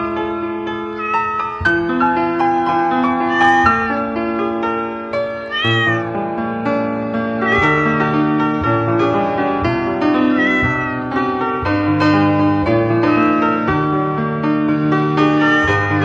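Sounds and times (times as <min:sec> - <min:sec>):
cat meowing: 0:00.9 - 0:01.7, 0:03.0 - 0:04.2, 0:05.2 - 0:06.2, 0:07.4 - 0:08.7, 0:10.0 - 0:11.2, 0:12.1 - 0:13.9, 0:15.1 - 0:16.0.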